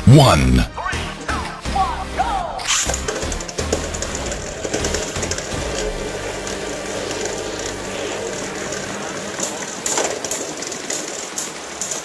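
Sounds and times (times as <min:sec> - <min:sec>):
spinning tops clacking together: 0:02.7 - 0:12.0
spinning tops whirring and rattling: 0:02.7 - 0:12.0.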